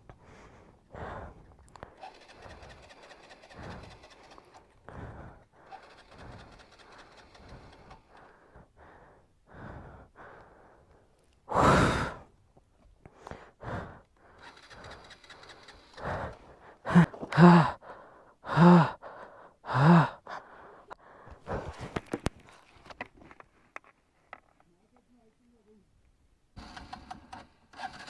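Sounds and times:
man breathing hard: 0:00.0 - 0:12.4, 0:13.0 - 0:22.2.

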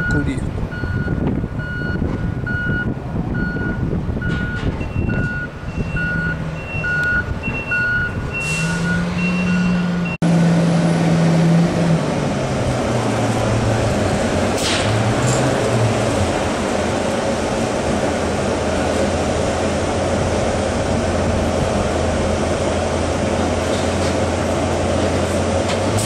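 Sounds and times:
reversing alarm beeping: 0:00.0 - 0:10.2
forklift engine humming: 0:00.0 - 0:26.0.

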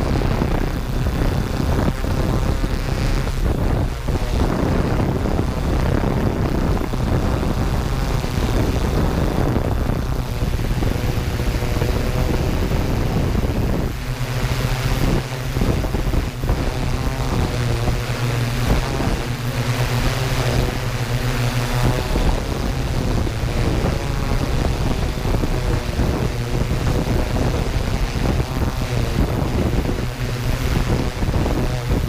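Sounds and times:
drone propellers humming: 0:00.0 - 0:32.0
wind noise: 0:00.0 - 0:32.0.

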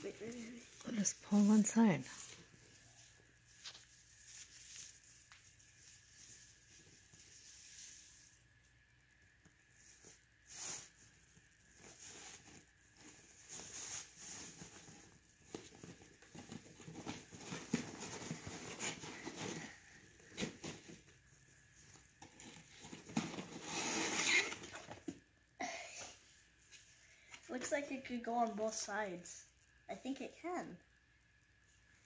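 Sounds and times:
fabric gift bag rustling: 0:00.0 - 0:08.3.

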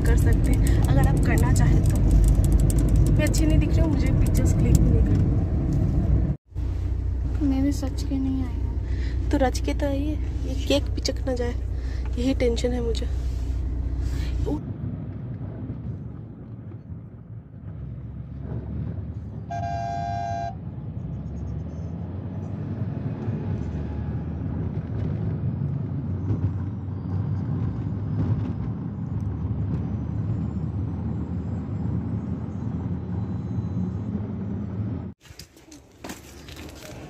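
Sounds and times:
car road and engine rumble: 0:00.0 - 0:37.0
vehicle horn: 0:19.5 - 0:20.6.

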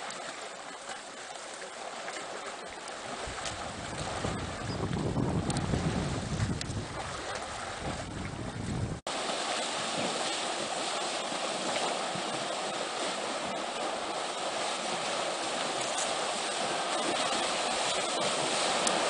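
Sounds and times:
elephants splashing through water: 0:00.0 - 0:19.0
wind buffeting microphone: 0:03.1 - 0:09.1.

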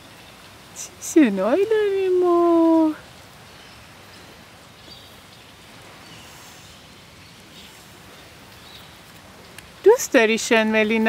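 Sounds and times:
low outdoor hiss: 0:00.0 - 0:11.0.

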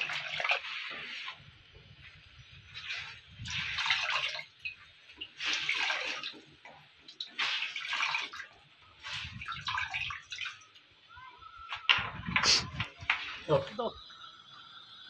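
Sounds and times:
water splashing and trickling: 0:00.0 - 0:15.0
cloth wrung out into water: 0:02.7 - 0:06.4, 0:07.2 - 0:10.6.

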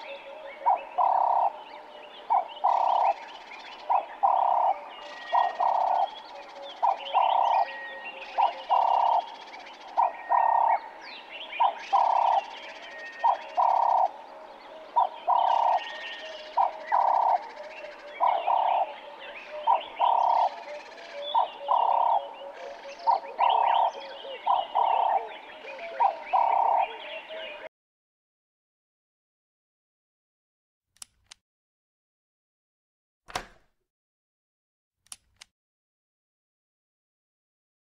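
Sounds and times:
dove cooing: 0:00.0 - 0:10.8, 0:11.6 - 0:27.7
small birds chirping faintly: 0:00.0 - 0:27.7.

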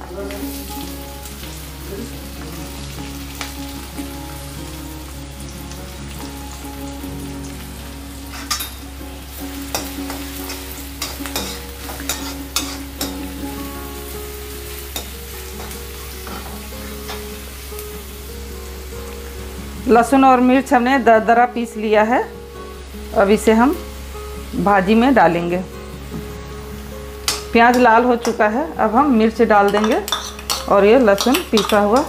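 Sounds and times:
onion frying in hot oil: 0:00.0 - 0:32.0
metal spoon scraping pan: 0:09.7 - 0:13.2, 0:29.6 - 0:32.0.

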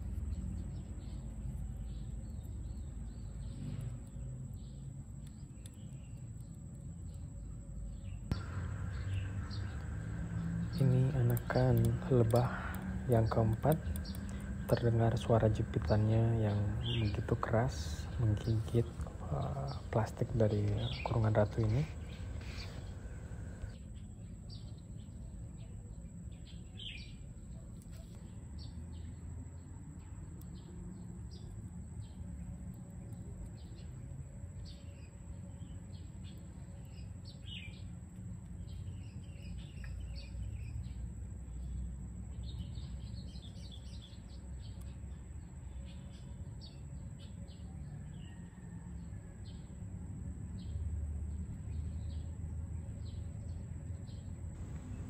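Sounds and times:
hornet mandibles clicking: 0:08.3 - 0:23.8
low rumble: 0:08.3 - 0:23.8, 0:54.5 - 0:55.0.

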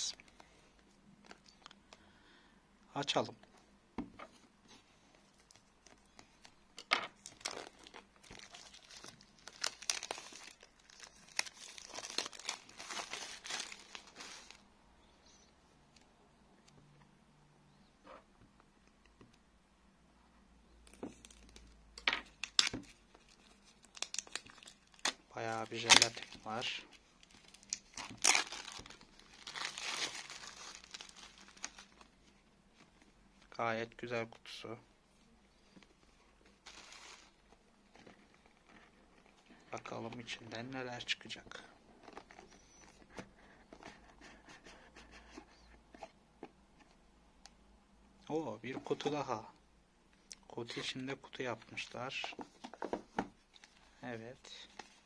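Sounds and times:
plastic shrink-wrap crinkling: 0:07.2 - 0:14.6, 0:22.4 - 0:32.1, 0:36.6 - 0:37.4.

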